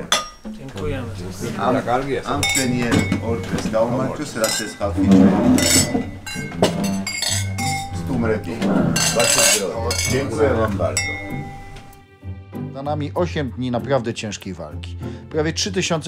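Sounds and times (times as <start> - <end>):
wine glasses clinking: 0.0 - 0.6, 2.3 - 12.0.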